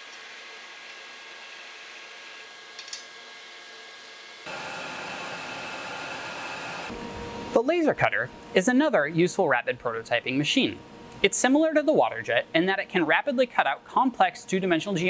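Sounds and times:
laser cutter whirring: 0:04.5 - 0:07.6.

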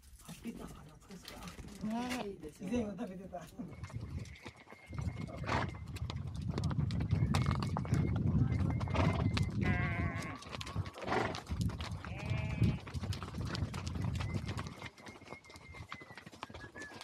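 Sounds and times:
horse hooves and tack clicking: 0:00.0 - 0:17.0
sheep and goats bleating: 0:09.5 - 0:11.4, 0:12.0 - 0:13.0.

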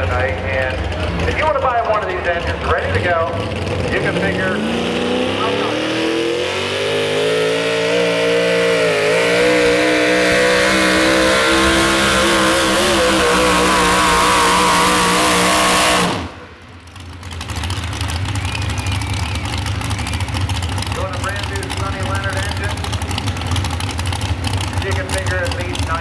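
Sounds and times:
engine idle rumble: 0:00.0 - 0:05.7, 0:16.2 - 0:26.0
truck engine at full throttle: 0:00.0 - 0:26.0.

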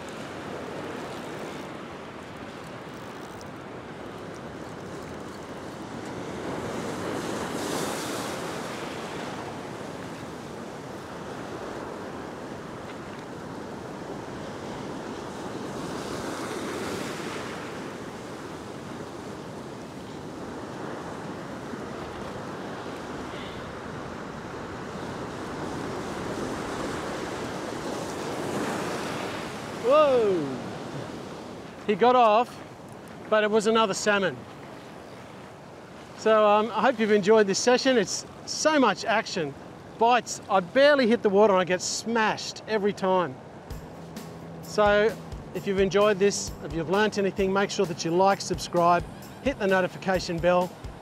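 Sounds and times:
white water rushing: 0:13.4 - 0:34.7, 0:35.4 - 0:43.8, 0:44.6 - 0:51.0.

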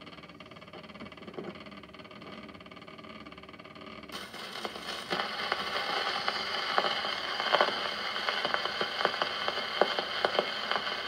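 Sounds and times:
record clicks and crackles: 0:04.1 - 0:11.0
record surface hiss: 0:04.1 - 0:11.0.

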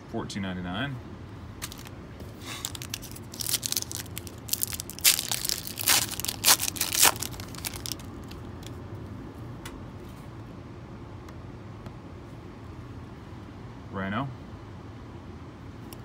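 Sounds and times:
low steady hum: 0:00.0 - 0:16.0
foil wrapper tearing and crinkling: 0:01.6 - 0:01.9, 0:02.5 - 0:08.5.

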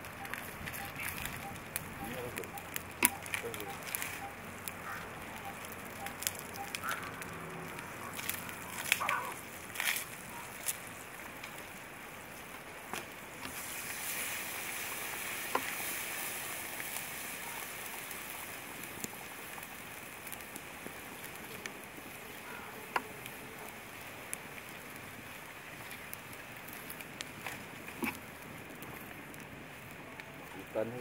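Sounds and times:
steady hiss: 0:00.0 - 0:22.4
wood fire crackling: 0:00.0 - 0:31.0
sharp pops: 0:00.2 - 0:10.9.

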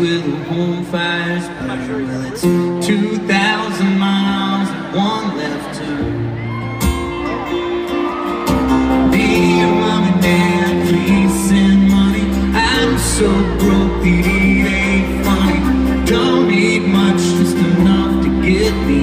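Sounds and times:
man singing: 0:00.0 - 0:06.3, 0:08.6 - 0:19.0
audience ambience: 0:00.0 - 0:19.0
strummed acoustic guitar: 0:00.0 - 0:19.0
keyboard accompaniment: 0:02.2 - 0:19.0.

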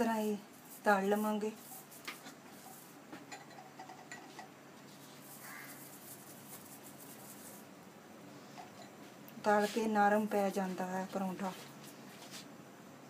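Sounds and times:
spoon scraping and tapping: 0:03.2 - 0:04.5
faint frying sizzle: 0:05.2 - 0:07.6.

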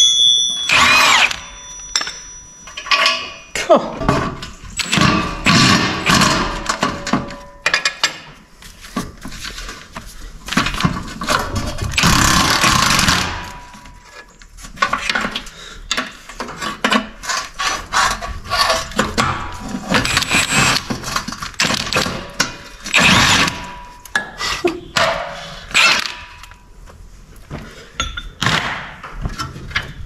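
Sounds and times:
harsh metal rattle: 0:04.3 - 0:07.6.

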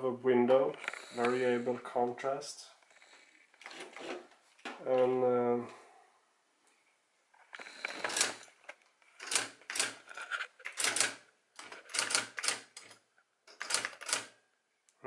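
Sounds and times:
electric typewriter striking keys: 0:13.6 - 0:14.3.

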